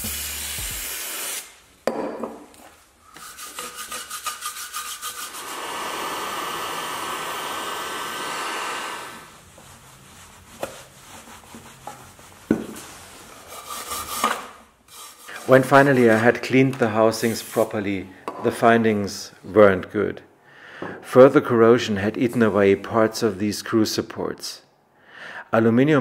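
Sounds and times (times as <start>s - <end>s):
spray hiss: 0.0s - 1.7s, 4.7s - 9.6s.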